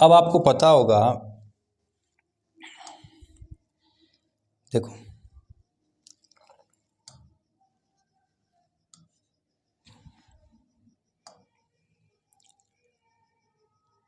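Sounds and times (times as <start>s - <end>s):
faint clicks and taps: 6.0s - 7.4s, 8.9s - 12.8s.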